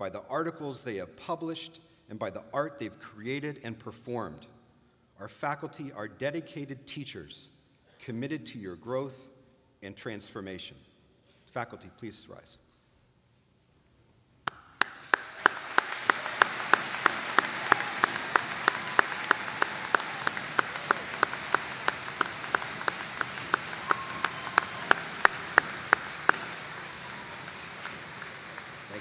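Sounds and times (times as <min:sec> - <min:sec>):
audience applauding: 0:14.5 - 0:29.0
sharp close claps: 0:14.5 - 0:29.0.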